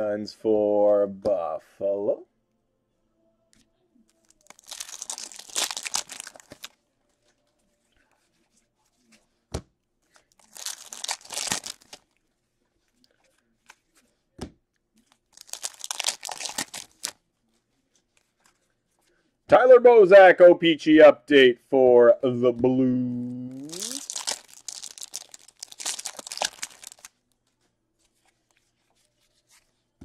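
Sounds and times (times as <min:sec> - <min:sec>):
wrappers torn and crinkled: 0:04.2 - 0:06.8, 0:10.3 - 0:12.2, 0:15.2 - 0:17.2, 0:23.6 - 0:27.2.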